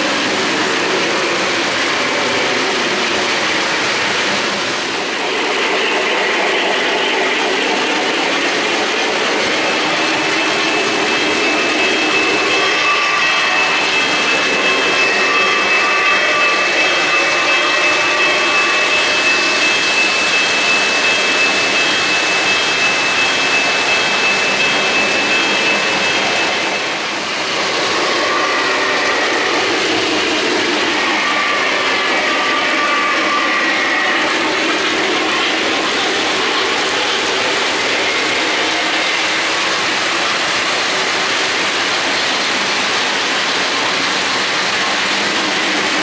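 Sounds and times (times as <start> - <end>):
model train wheels rumbling on rails: 0.0 - 46.0
thin high tone: 5.0 - 40.4.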